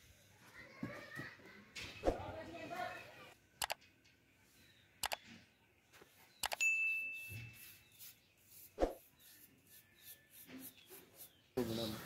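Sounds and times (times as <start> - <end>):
mouse clicks: 3.6 - 3.8, 5.0 - 5.2, 6.4 - 6.6
bright bell ding: 6.6 - 7.4.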